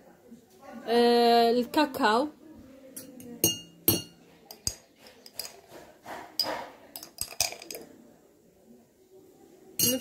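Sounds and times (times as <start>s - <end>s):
spoon scraping: 3.0s - 7.9s
teaspoon clinking against jar: 9.8s - 10.0s.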